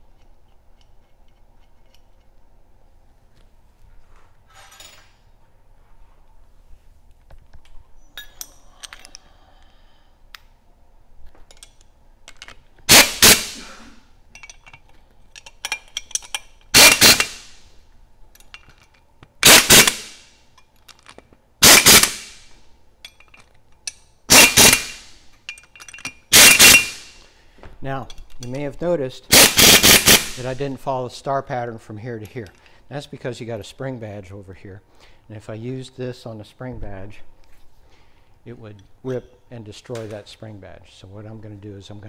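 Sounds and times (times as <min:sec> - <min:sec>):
metallic clinks of socket and nuts: 0:04.5 - 0:05.2, 0:08.2 - 0:09.2, 0:11.5 - 0:12.6, 0:14.3 - 0:17.5, 0:18.3 - 0:19.1, 0:23.0 - 0:27.1
impact wrench hammering: 0:12.9 - 0:13.6, 0:16.7 - 0:17.6, 0:19.4 - 0:20.3, 0:21.6 - 0:22.5, 0:24.3 - 0:27.2, 0:29.3 - 0:30.6.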